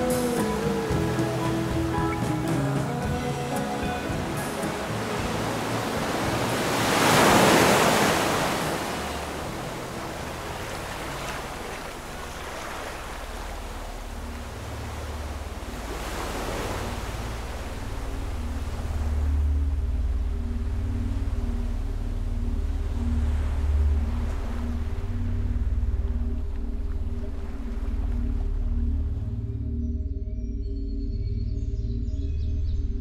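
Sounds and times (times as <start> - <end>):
sea waves washing: 0.0 - 29.5
low rumble: 9.1 - 33.0.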